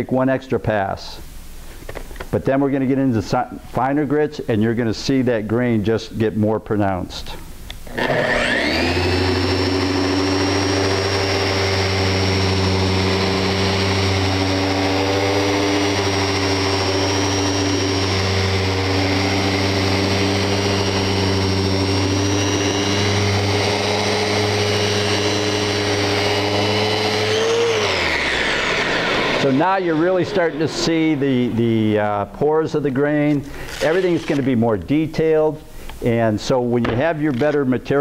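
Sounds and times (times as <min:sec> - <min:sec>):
sander humming and whining: 0:07.9 - 0:32.2.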